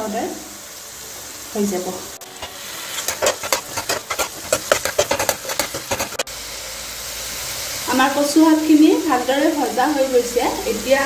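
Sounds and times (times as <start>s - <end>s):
light sizzle: 0.0s - 11.0s
utensil scraping frying pan: 2.2s - 6.3s.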